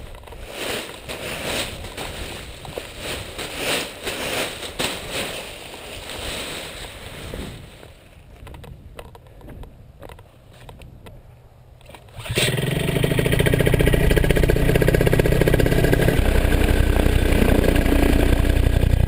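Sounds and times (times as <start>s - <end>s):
wind gusting over microphone: 1.0s - 10.1s.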